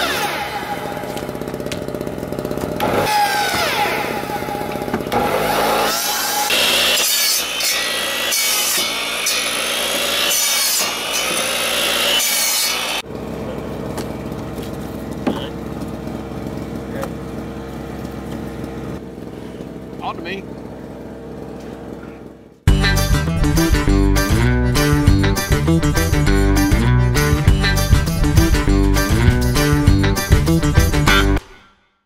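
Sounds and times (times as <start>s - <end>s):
saw blade cutting wood: 0.0s - 13.0s
saw motor whine: 0.0s - 19.0s.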